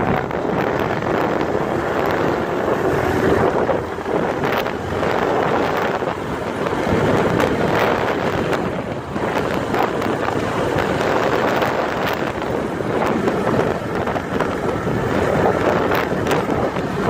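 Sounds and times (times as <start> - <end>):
motorcycle engine running: 0.0 - 17.0
wind rushing over microphone: 0.0 - 17.0.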